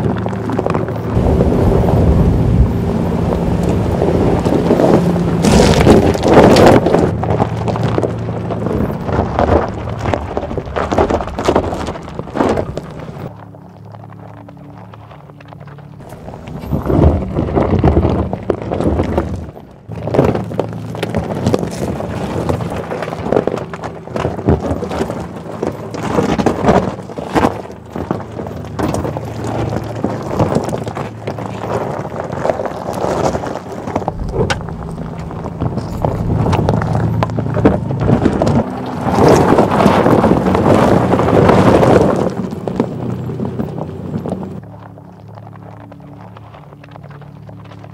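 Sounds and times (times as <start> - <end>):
low steady hum: 0.0 - 47.9
tyres crunching over gravel: 0.0 - 47.9.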